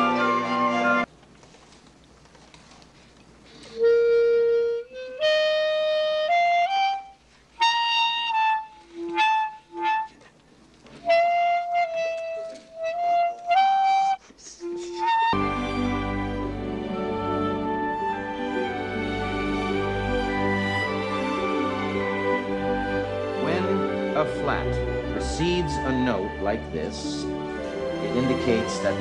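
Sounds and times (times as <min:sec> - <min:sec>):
solo clarinet: 0:00.0 - 0:01.1, 0:03.6 - 0:26.6.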